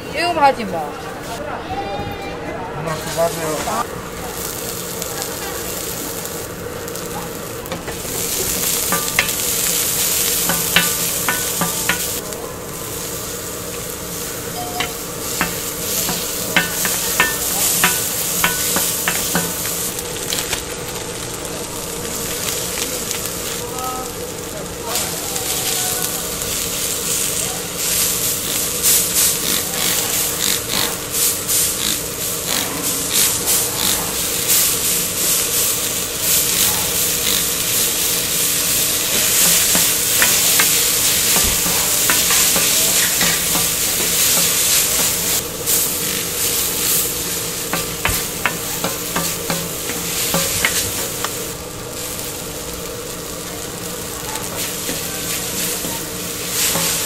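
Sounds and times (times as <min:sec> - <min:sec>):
steady hum: 0:00.0 - 0:57.0
noodles sizzling on a griddle: 0:02.9 - 0:57.0
wooden spoons tapping and scraping metal: 0:07.0 - 0:12.3, 0:14.6 - 0:20.6, 0:28.4 - 0:31.1, 0:35.4 - 0:45.4, 0:46.8 - 0:51.4, 0:54.4 - 0:57.0.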